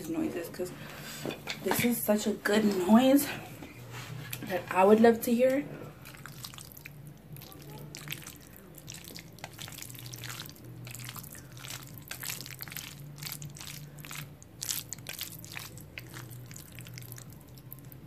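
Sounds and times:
steady low hum: 0.0 - 18.0
chopsticks stirring wet noodles: 5.9 - 18.0.

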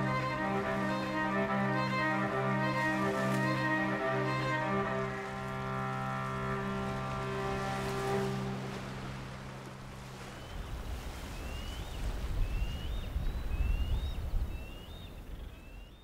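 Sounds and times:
held music chord: 0.0 - 10.4
surf: 0.0 - 14.5
wind rumbling on microphone: 4.9 - 16.0.

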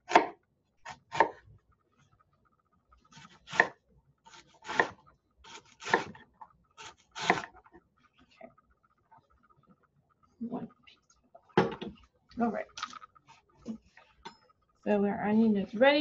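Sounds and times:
knife chopping on wooden board: 0.1 - 0.3, 3.2 - 3.7, 4.6 - 6.2.

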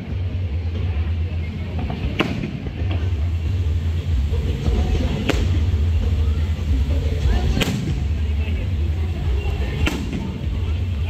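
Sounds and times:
steady low rumble: 0.0 - 11.0
firework shell bang: 2.1 - 3.2, 5.1 - 6.0, 7.4 - 8.2, 9.8 - 10.5.

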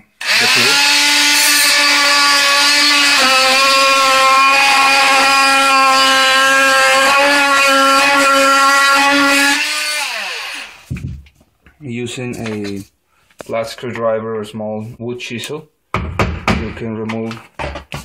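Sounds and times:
oscillating multi-tool cutting wood: 0.2 - 10.9
power tool winding down: 0.2 - 10.9.

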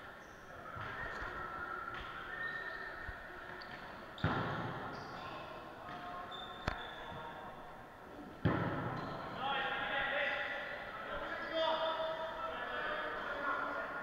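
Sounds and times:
crowd noise in echoing hall: 0.0 - 14.0
shoes squeaking on court: 0.2 - 7.4.

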